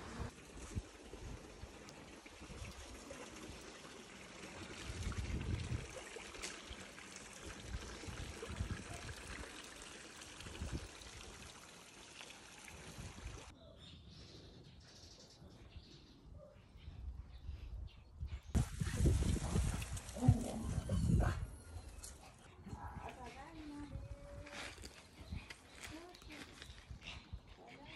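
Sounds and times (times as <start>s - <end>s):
water rushing in a channel: 0.0s - 13.5s.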